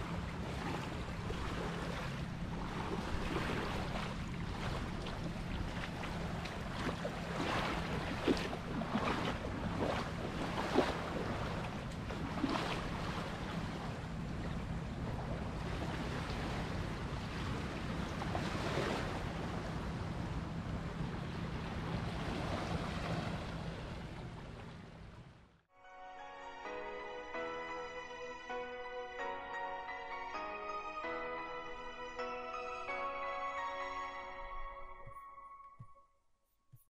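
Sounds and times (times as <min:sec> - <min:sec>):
waves lapping on stony shore: 0:00.0 - 0:19.9, 0:21.1 - 0:24.7.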